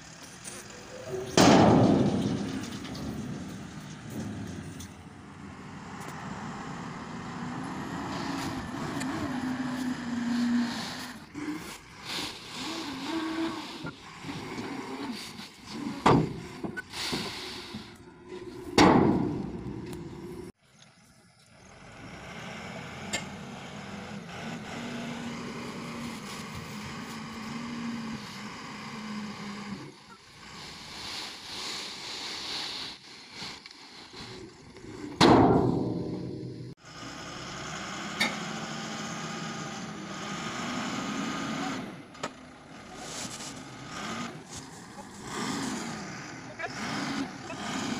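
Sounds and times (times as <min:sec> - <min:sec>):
truck engines running: 0:00.0 - 0:47.9
loud bangs: 0:01.1 - 0:05.5.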